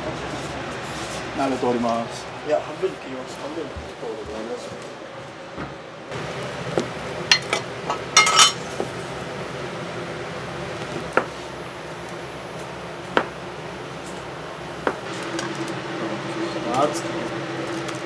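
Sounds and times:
utensils clinking against dishes: 7.3 - 8.7.

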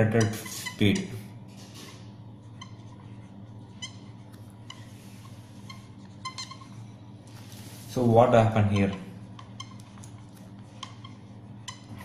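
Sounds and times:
marker squeaking on surface: 0.0 - 7.2, 8.7 - 12.0
steady low hum: 0.0 - 12.0.

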